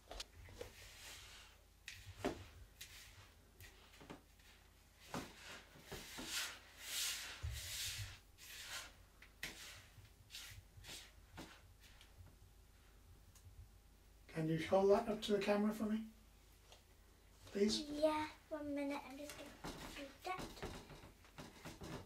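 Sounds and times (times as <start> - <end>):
gritty sugar and salt scraping: 5.4 - 11.6.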